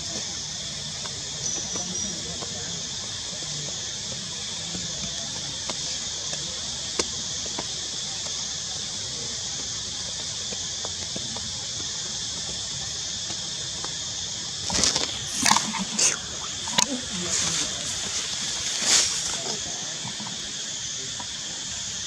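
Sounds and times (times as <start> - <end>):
high-pitched insect drone: 14.4 - 22.0.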